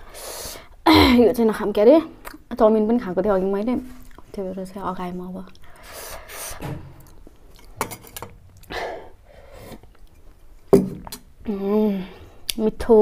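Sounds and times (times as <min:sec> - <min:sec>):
person humming: 0:00.9 - 0:01.3
chewing food: 0:04.0 - 0:04.3.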